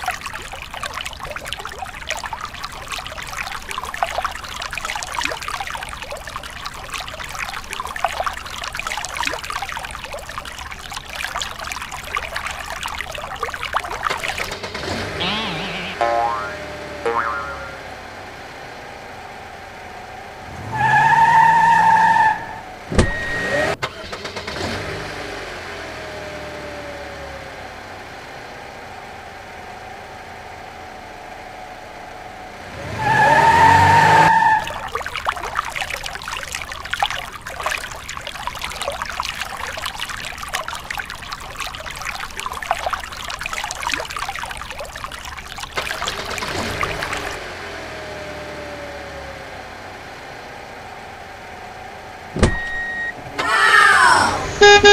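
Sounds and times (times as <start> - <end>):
crackling rattling engine noise: 13.6 - 15.3, 22.6 - 32.7, 45.1 - 53.4
engine start with horn-like tone: 14.4 - 16.8, 20.5 - 26.2, 52.4 - 54.9.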